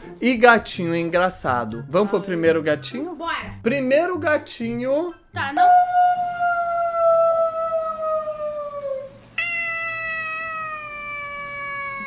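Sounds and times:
cat meowing: 9.3 - 12.0.

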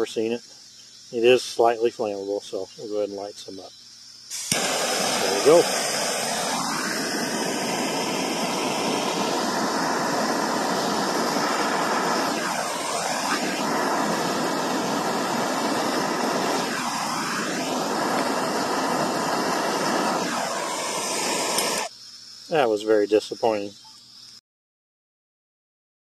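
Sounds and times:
gas torch roaring hiss: 1.1 - 21.9.

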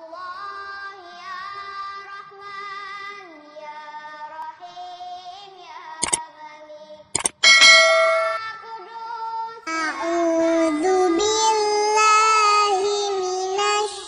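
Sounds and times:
mouse click: 7.2 - 7.5
high singing voice: 9.7 - 14.0.

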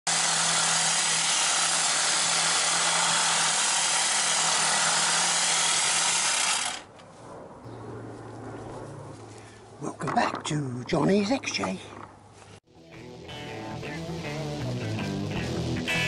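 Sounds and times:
electric hedge trimmer running: 0.1 - 6.9.

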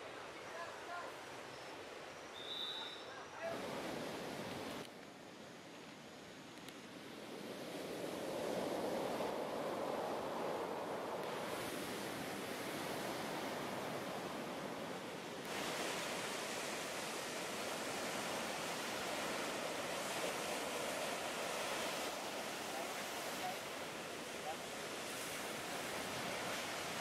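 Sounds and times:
surf washing over pebbles: 7.2 - 27.0.

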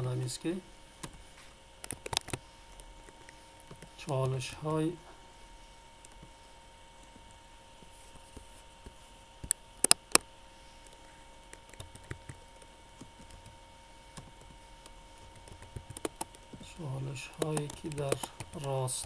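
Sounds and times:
faint electrical hum: 0.0 - 19.0
computer keyboard tapping: 1.8 - 2.4, 10.8 - 19.0
computer mouse clicks: 1.8 - 4.3, 14.2 - 16.4, 17.4 - 18.8.

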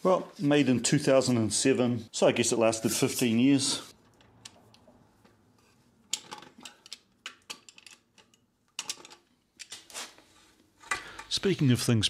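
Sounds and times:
metal clicks and knocks: 6.1 - 9.9.

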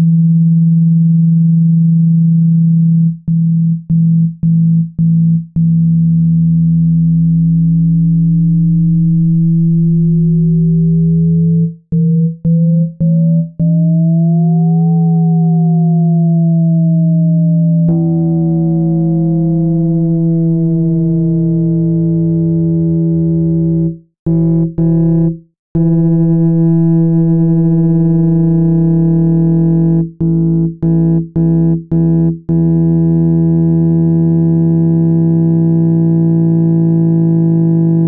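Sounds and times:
low synthesizer tone: 0.0 - 33.1.

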